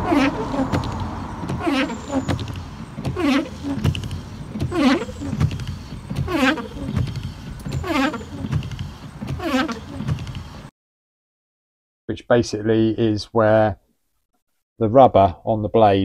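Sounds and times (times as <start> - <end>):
wiper blades squeaking on glass: 0.0 - 10.7.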